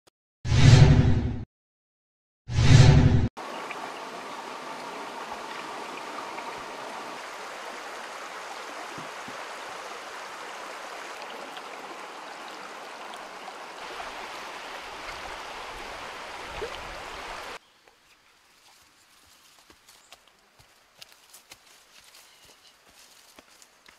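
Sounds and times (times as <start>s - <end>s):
stream running over rocks: 3.4s - 22.0s.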